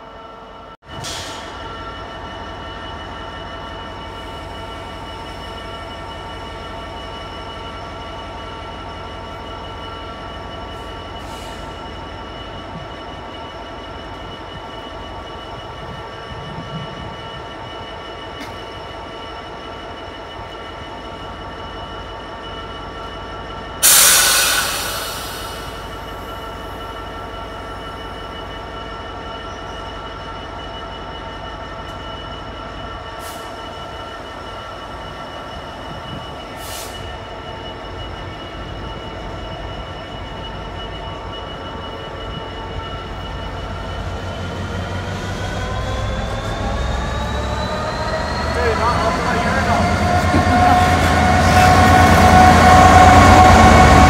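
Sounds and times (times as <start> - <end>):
diesel locomotive engine idling: 1.0 - 54.0
loud air hiss: 23.8 - 26.1.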